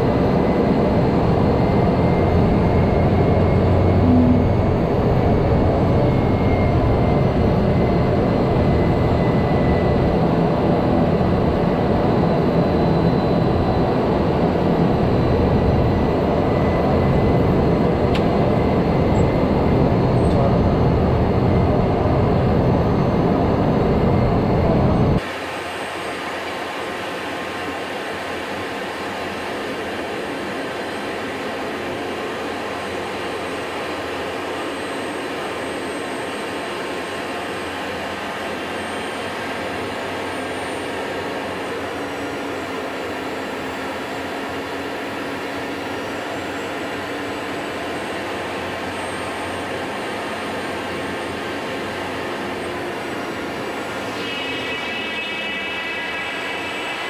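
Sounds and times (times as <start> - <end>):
turboprop engine running: 0.0 - 57.0
buzzing tone: 1.6 - 6.8, 51.9 - 57.0.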